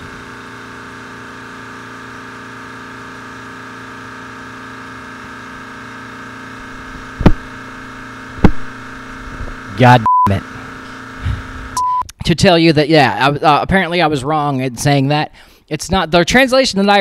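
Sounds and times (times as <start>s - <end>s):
room noise hum: 6.6s - 12.1s
microphone handling thumps: 7.2s - 7.6s, 8.4s - 8.7s, 11.2s - 11.5s.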